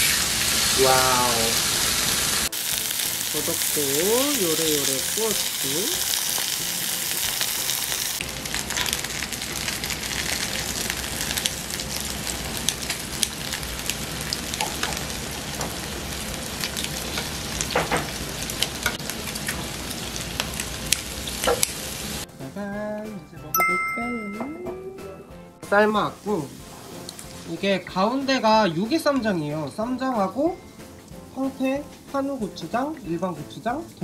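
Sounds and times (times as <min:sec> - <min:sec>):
food sizzling on a griddle: 0:00.0 - 0:22.3, 0:25.7 - 0:34.0.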